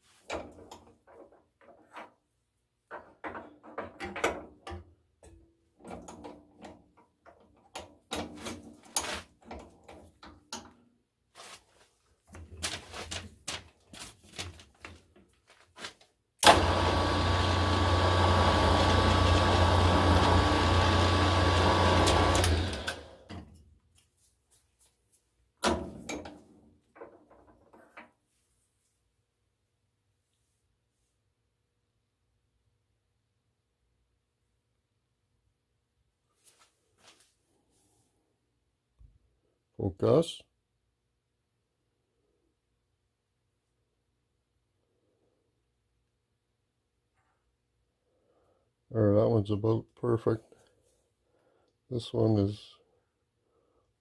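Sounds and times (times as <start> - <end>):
drill press humming: 16.4 - 23.4.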